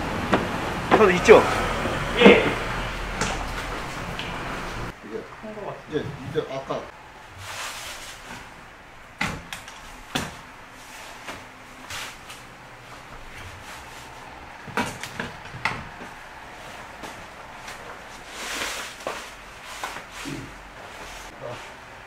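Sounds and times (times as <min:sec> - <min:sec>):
canvas rustling: 0:07.0 - 0:21.8.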